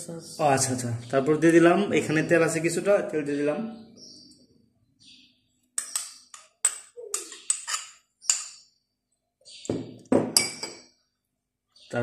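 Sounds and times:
glass and spoon clinking on dishes: 5.8 - 8.6, 10.1 - 10.9
glass knocking on stone tabletop: 9.7 - 10.9.

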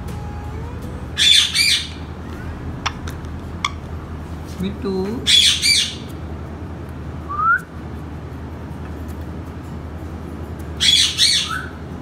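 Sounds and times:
parakeet rising whistle: 1.2 - 2.0, 10.8 - 11.7
parakeet harsh call: 1.2 - 2.6, 5.2 - 6.1, 10.8 - 11.8.

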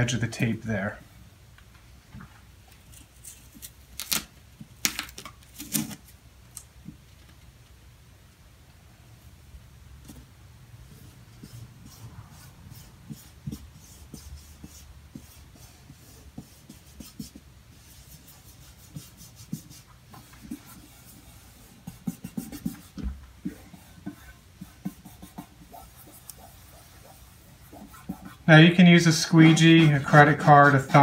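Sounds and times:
hands rubbing sticker on panel: 10.9 - 31.0.

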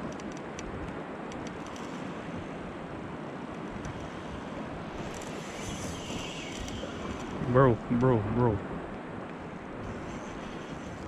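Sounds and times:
faint ticks: 0.0 - 2.2, 3.5 - 8.2
sea water around boat: 0.0 - 11.0
wind on microphone: 0.0 - 11.0.

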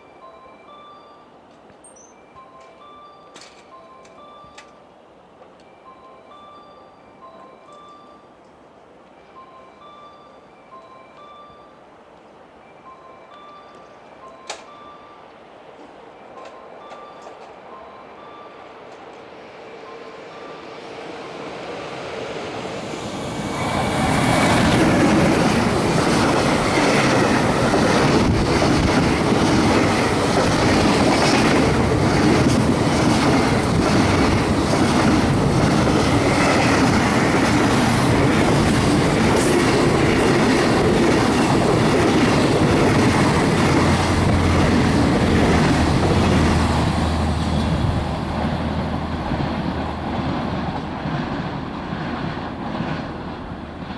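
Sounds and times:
freight train passing: 0.0 - 53.9
wheels clattering on rails: 22.4 - 53.9.

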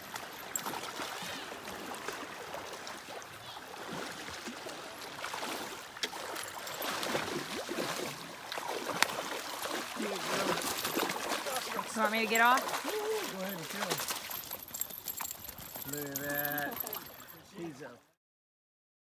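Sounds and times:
river water lapping: 0.0 - 18.1
fish thrashing at water surface: 5.1 - 17.2.

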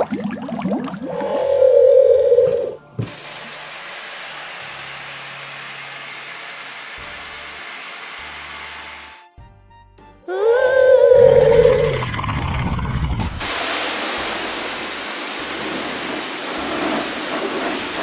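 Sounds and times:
fizzing hiss: 3.0 - 8.6, 13.4 - 18.0.

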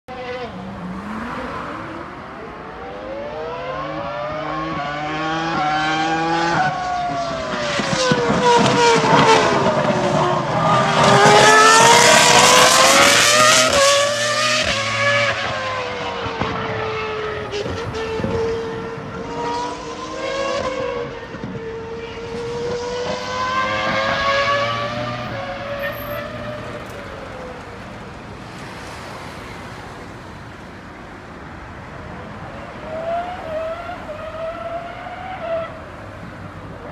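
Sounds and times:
racing car engine revving: 0.1 - 27.4.

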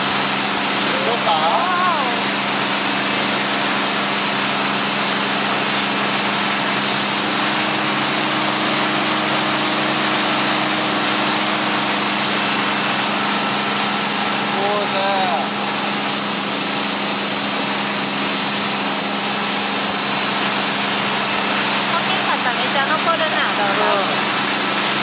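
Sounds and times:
boat engine drone: 0.0 - 25.0
rushing wake: 0.0 - 25.0.

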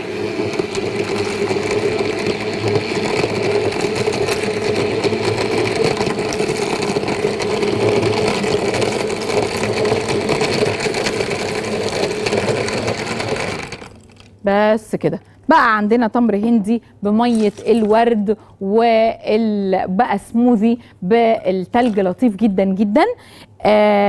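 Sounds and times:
blender crushing ice: 0.0 - 14.4.

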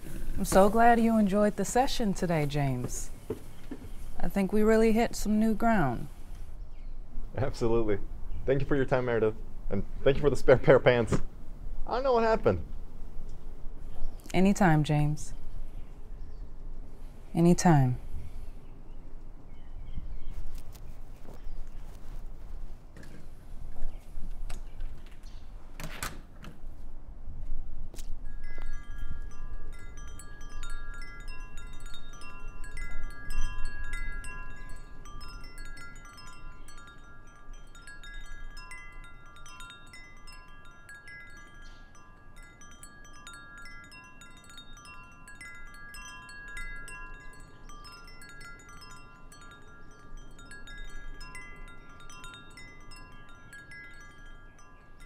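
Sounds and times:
wind chimes ringing: 0.0 - 6.5, 28.0 - 55.0.

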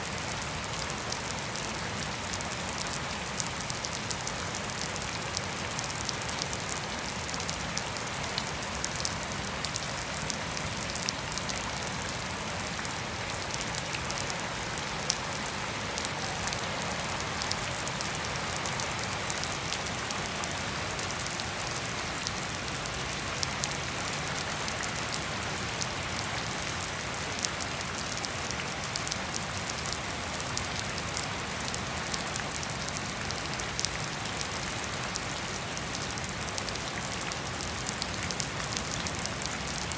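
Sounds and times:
rain falling on wet grass: 0.0 - 39.9.

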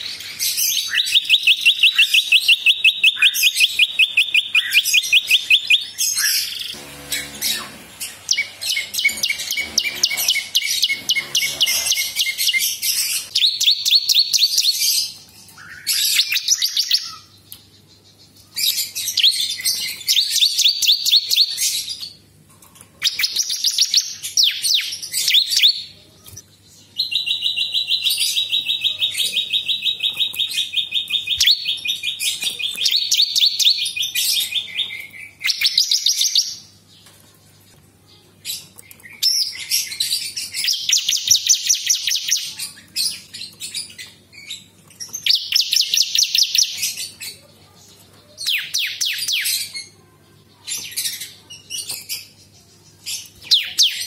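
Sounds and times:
bird singing rapid trills: 0.0 - 21.9.

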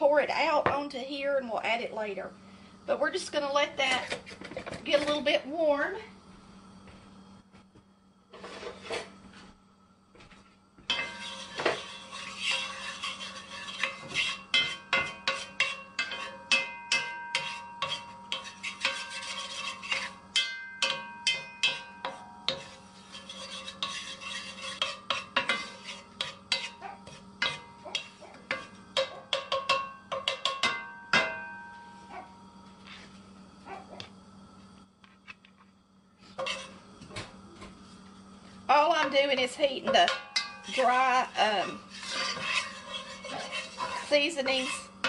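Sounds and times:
faint steady hum: 0.0 - 45.0
wooden spatula scraping a pan: 3.8 - 5.4, 8.3 - 9.2, 10.9 - 30.6, 32.8 - 33.2, 36.2 - 36.8, 38.7 - 45.0.

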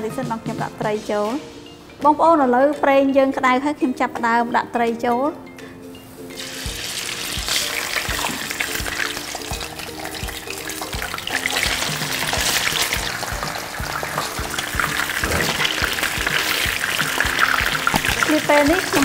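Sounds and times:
background music with steady beat: 0.0 - 19.0
fish sizzling in hot oil: 6.2 - 19.0.

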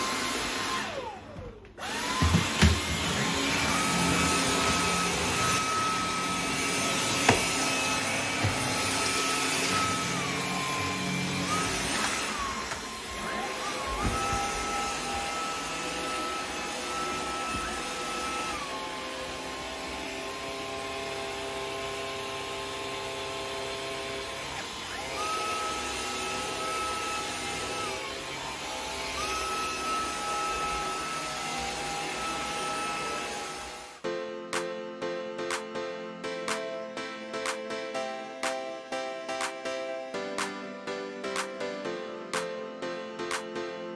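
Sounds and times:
vacuum cleaner motor whine: 0.0 - 34.0.

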